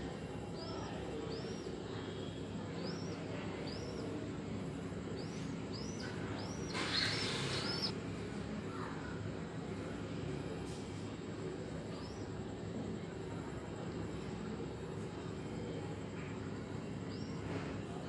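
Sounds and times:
steady low hum: 0.0 - 18.0
bird chirping: 0.6 - 4.3, 5.1 - 7.9.

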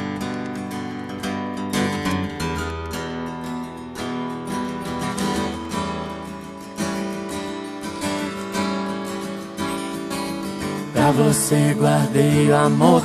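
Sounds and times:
strummed acoustic guitar chords: 0.0 - 13.0.

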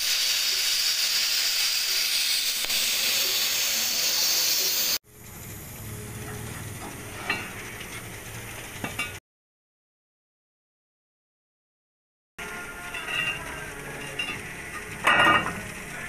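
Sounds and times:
plasma cutting torch hissing: 0.0 - 5.6.

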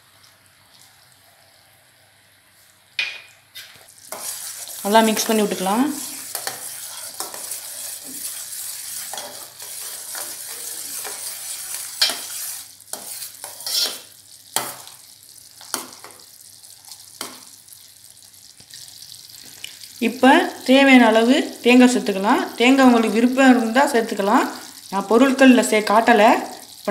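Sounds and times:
syrup bubbling and sizzling: 0.0 - 26.9
metal spoon scraping a pan: 3.6 - 5.6, 6.2 - 14.9.

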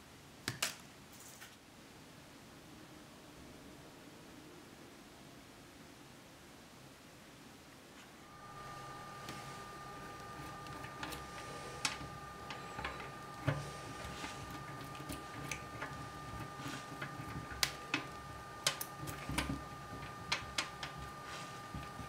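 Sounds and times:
brush scrubbing in soapy water: 8.8 - 22.0.

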